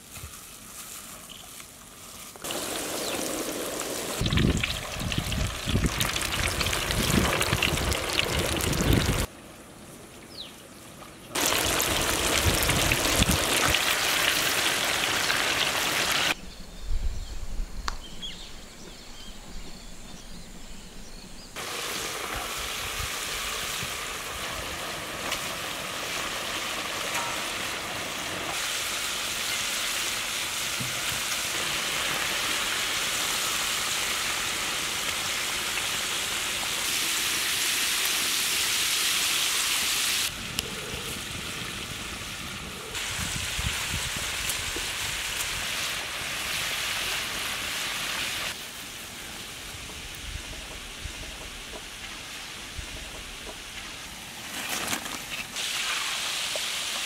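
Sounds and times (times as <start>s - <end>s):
hot oil sizzling: 2.3s - 9.3s, 11.4s - 16.4s, 21.6s - 40.3s, 41.3s - 54.0s, 55.4s - 57.0s.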